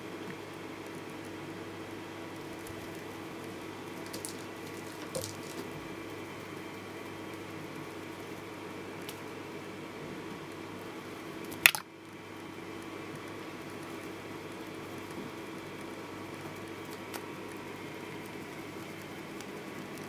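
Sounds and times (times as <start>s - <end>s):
low room hum: 0.0s - 20.0s
faint clicks and rustles: 2.4s - 8.1s, 11.4s - 20.0s.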